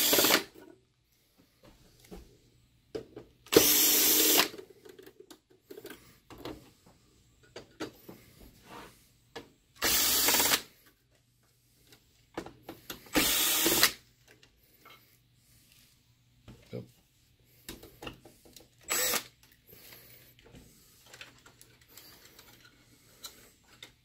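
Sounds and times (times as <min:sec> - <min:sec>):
electric screwdriver running: 0:00.0 - 0:00.5, 0:03.5 - 0:04.5, 0:09.8 - 0:10.7, 0:13.1 - 0:14.0, 0:18.9 - 0:19.3
light clicks and handling noise: 0:20.3 - 0:24.0.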